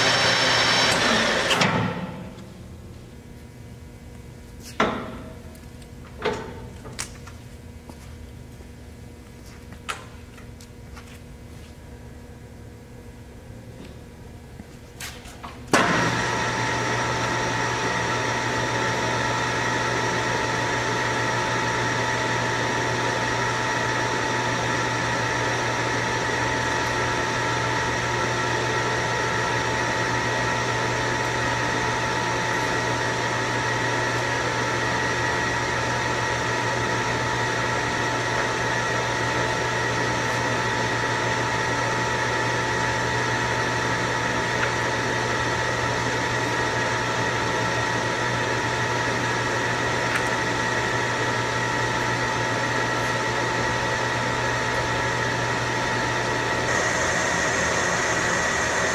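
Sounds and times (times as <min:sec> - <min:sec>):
lathe motor humming and whining: 0:00.0 - 0:01.9, 0:15.7 - 0:58.9.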